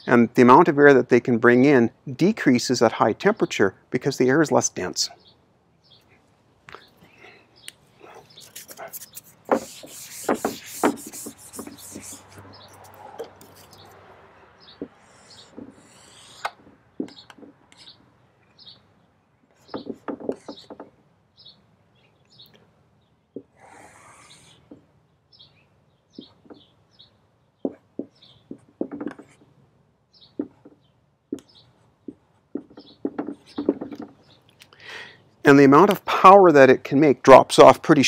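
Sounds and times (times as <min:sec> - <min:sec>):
marker squeaks: 0:08.0 - 0:14.0, 0:14.7 - 0:18.1, 0:19.6 - 0:20.9, 0:23.4 - 0:24.8, 0:26.2 - 0:26.8, 0:27.6 - 0:29.5, 0:30.2 - 0:34.5
whiteboard being wiped: 0:08.4 - 0:13.8
marker taps on whiteboard: 0:09.5 - 0:12.2, 0:14.8 - 0:15.8, 0:16.4 - 0:17.6, 0:19.7 - 0:20.9, 0:27.6 - 0:29.4, 0:30.4 - 0:34.1.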